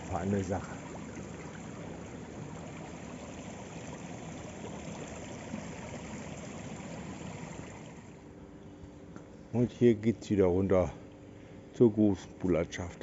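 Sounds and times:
running water rushing: 0.0 - 8.2.

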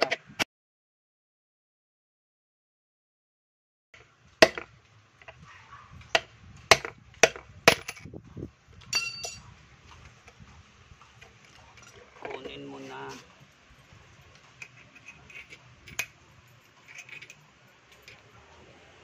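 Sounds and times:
light ringing clinks: 8.8 - 9.5, 13.3 - 18.5.

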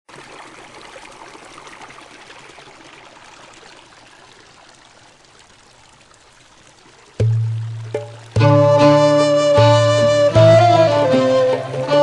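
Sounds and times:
small water splashes: 0.1 - 8.6
stream water rushing: 0.1 - 12.0.

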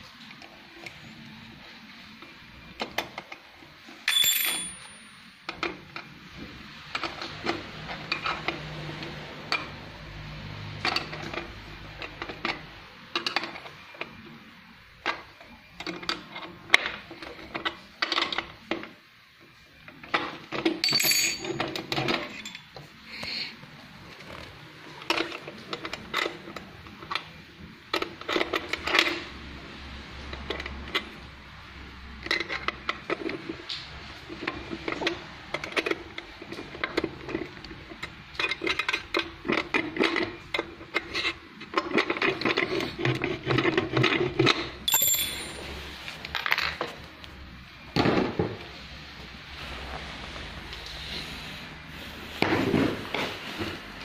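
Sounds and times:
metal tools clinking and scraping: 4.0 - 5.4, 20.6 - 22.8, 44.4 - 46.9.

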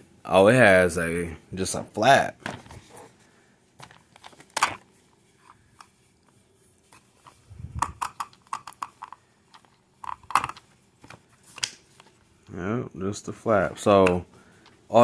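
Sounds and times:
hands handling plastic: 2.4 - 12.4, 13.5 - 15.0.

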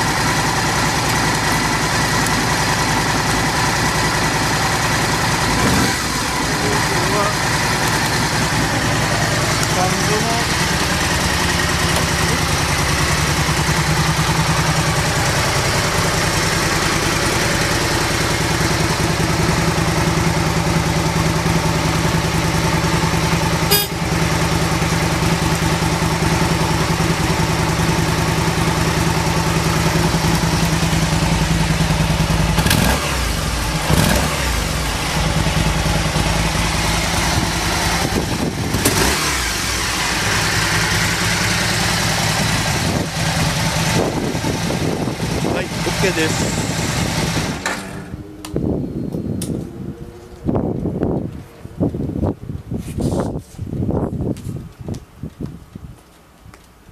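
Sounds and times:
motorcycle engine idling: 0.0 - 52.6.

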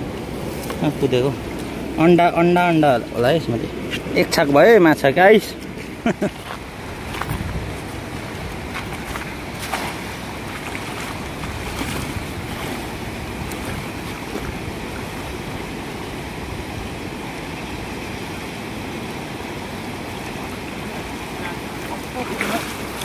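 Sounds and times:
river water rushing: 0.0 - 23.0
net splashing on water: 8.7 - 15.3.

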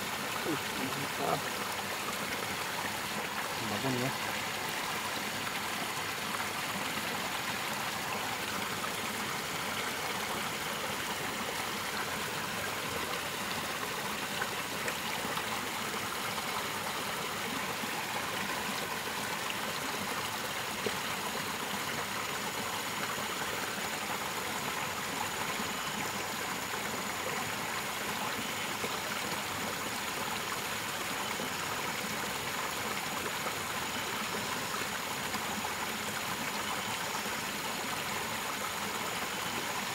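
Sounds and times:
stream spilling over rocks: 0.0 - 39.9.

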